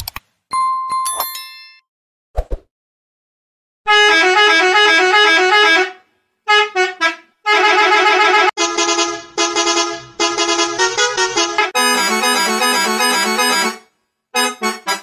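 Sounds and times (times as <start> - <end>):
coach horn honks: 3.9 - 15.0
school bus horn: 3.9 - 15.0.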